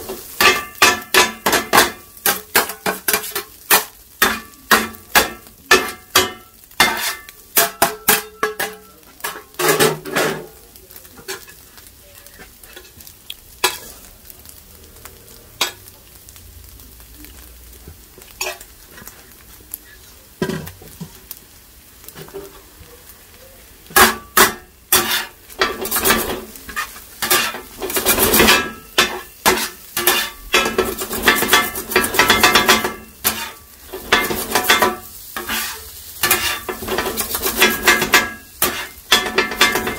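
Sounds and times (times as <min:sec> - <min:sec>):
metal blades clanging on griddle: 0:00.0 - 0:11.6, 0:12.3 - 0:14.0, 0:15.6 - 0:16.0, 0:18.3 - 0:19.1, 0:23.9 - 0:39.9
faint sizzling: 0:00.0 - 0:39.9.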